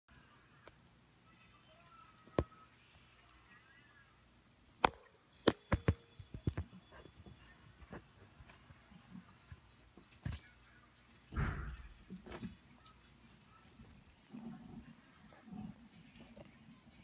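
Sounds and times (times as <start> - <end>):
cat toy jingling and clicking: 1.1 - 2.5, 4.8 - 6.6, 11.2 - 14.4, 15.1 - 17.0.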